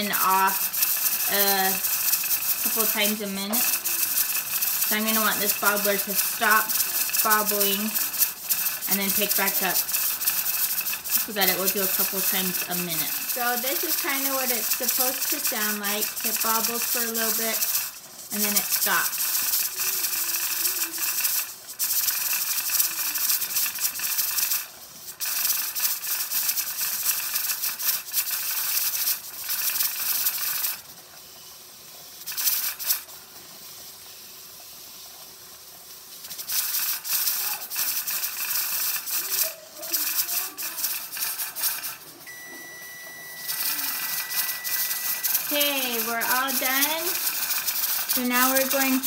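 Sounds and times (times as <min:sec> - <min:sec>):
pressure regulator rattling and hissing: 0:00.0 - 0:42.3, 0:43.4 - 0:49.0
long electronic beep: 0:42.3 - 0:45.4.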